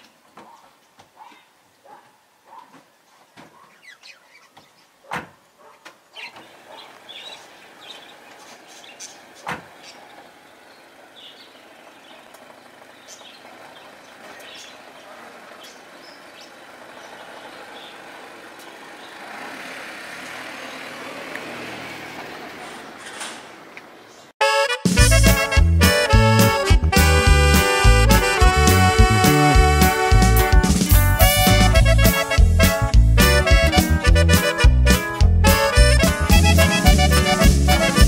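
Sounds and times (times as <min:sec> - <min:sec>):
car engine and tyres pulling out: 0:06.2 - 0:24.4
car door shutting: 0:09.4 - 0:09.8.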